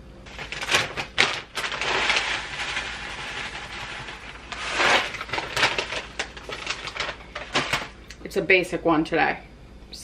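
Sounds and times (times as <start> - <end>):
plastic bag crinkling: 0.3 - 8.2.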